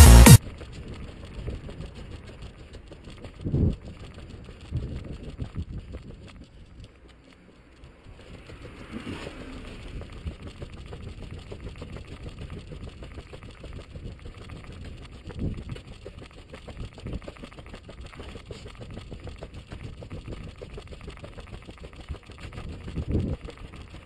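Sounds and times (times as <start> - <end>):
street traffic: 6.5 - 11.6
vehicle passing: 7.0 - 11.7.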